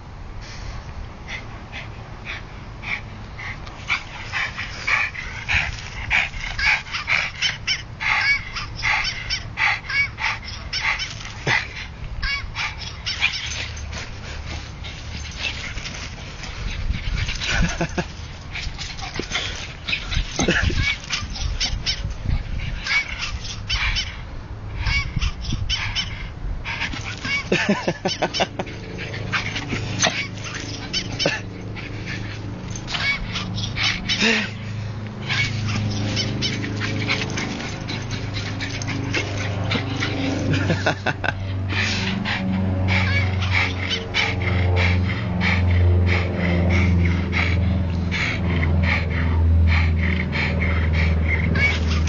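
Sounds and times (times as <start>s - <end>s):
dog barking and yipping: 3.8s - 41.0s, 41.7s - 46.1s, 50.3s - 52.0s.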